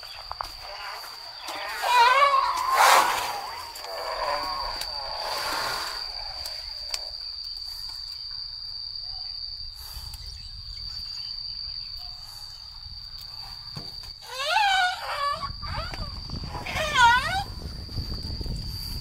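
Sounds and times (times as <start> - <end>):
insects droning: 0.0 - 19.0
elephant high squeaking call: 0.6 - 6.0, 14.2 - 17.5.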